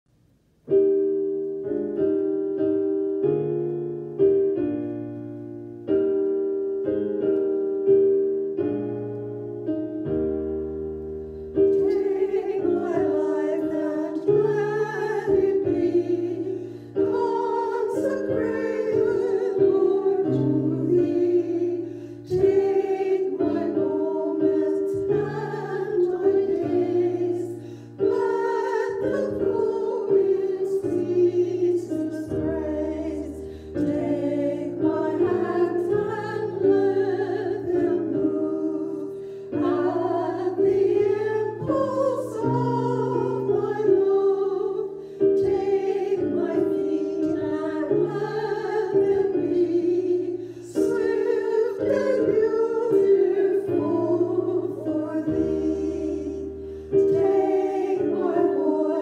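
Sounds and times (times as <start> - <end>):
grand piano playing slow chords: 0.6 - 59.0
women singing a hymn: 11.6 - 59.0.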